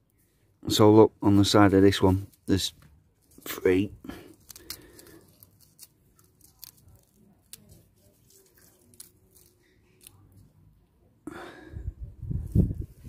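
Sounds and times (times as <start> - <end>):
fingers crackling garlic skin: 1.7 - 10.5.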